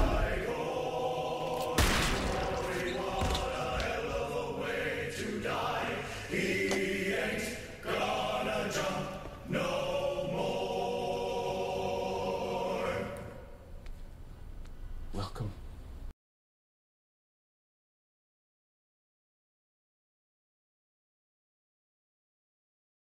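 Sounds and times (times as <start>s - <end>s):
choir singing: 0.0s - 13.7s
sharp cracks: 1.6s - 4.0s.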